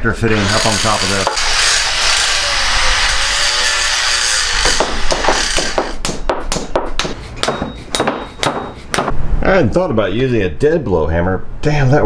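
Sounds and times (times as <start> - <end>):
steady rasping noise: 0.0 - 9.4
hammer knocking on metal fitting: 4.7 - 9.2.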